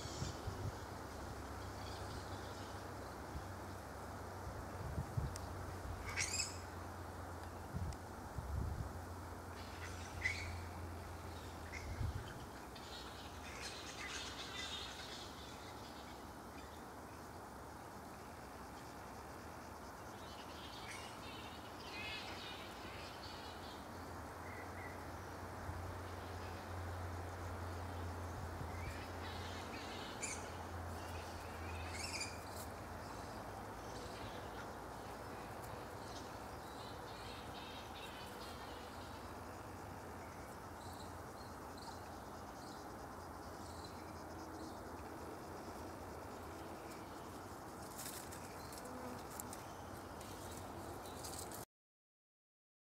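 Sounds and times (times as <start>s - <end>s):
steady hiss: 0.0s - 51.6s
small birds chirping: 5.2s - 6.7s, 28.2s - 45.2s.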